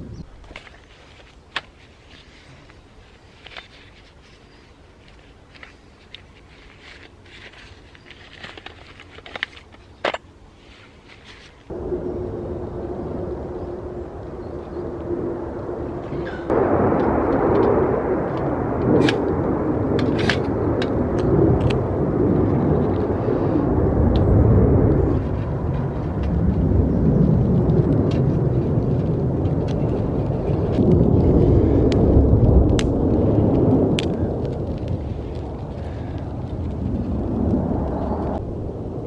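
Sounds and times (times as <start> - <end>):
fighter jets rumbling overhead: 11.7 - 39.0
dry twigs snapping: 27.3 - 38.4.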